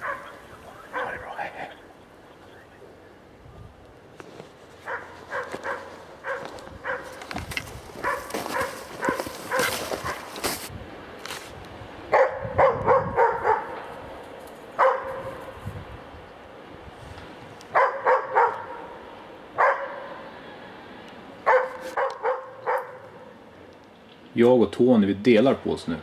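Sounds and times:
dog barking: 0.0 - 1.2, 4.8 - 7.2, 8.0 - 10.4, 12.1 - 13.8, 14.8 - 15.4, 17.7 - 19.0, 19.6 - 20.2, 21.4 - 23.2
footsteps crunching through snow: 4.1 - 11.6.

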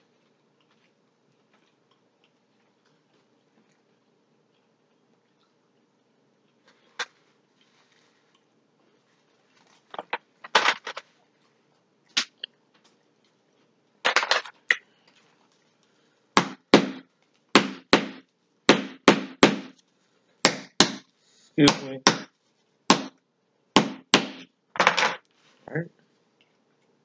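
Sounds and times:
wooden mallet knocking on crab legs: 16.4 - 19.8, 20.4 - 22.3, 22.9 - 23.2, 23.8 - 24.5.

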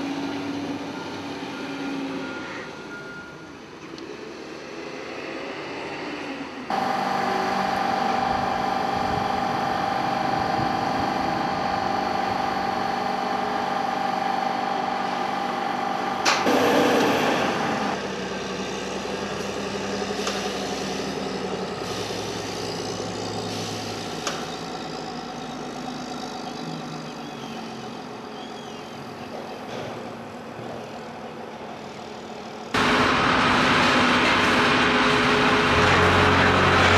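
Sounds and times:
loud burst of noise: 6.7 - 18.2, 32.8 - 36.9
steady whine: 6.7 - 18.2
machinery hum: 6.7 - 28.3, 29.0 - 36.9
diesel engine running: 6.7 - 36.9.

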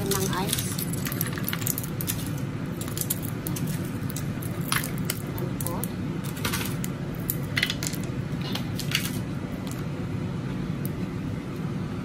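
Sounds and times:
ice cubes clinking: 0.0 - 8.1
steady low hum: 0.0 - 12.0.

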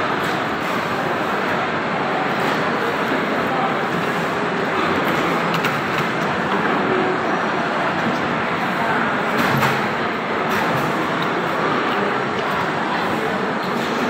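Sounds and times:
murmur of many voices: 0.0 - 14.0.

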